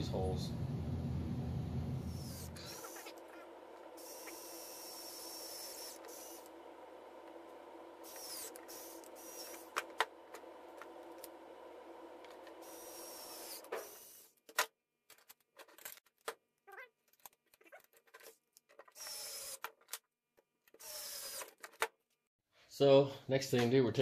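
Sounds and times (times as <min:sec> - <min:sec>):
electric screwdriver motor running: 0:02.1 - 0:03.1, 0:04.0 - 0:06.5, 0:08.0 - 0:09.8, 0:12.6 - 0:14.2, 0:19.0 - 0:19.6, 0:20.8 - 0:21.5.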